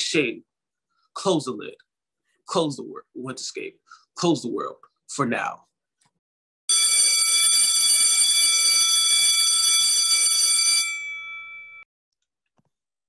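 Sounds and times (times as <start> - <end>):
electric alarm bell ringing: 6.7 - 11.9.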